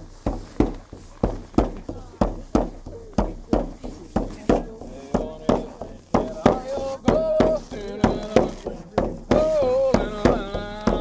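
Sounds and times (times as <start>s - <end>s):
frame drum beaten: 0.0s - 11.0s
man chanting in long bending notes: 4.9s - 11.0s.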